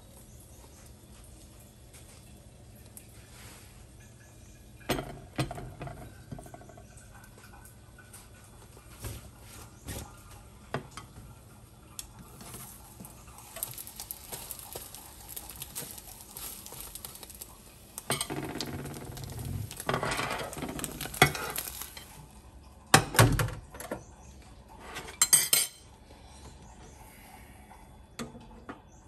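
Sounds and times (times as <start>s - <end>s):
omelette frying: 0.0s - 26.3s
spatula scraping pan: 18.0s - 22.1s.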